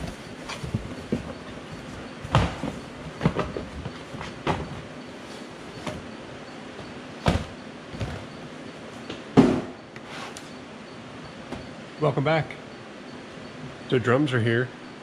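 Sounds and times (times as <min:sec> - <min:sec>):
boxes knocking on counter: 0:00.0 - 0:04.8, 0:07.2 - 0:08.3, 0:09.4 - 0:09.8.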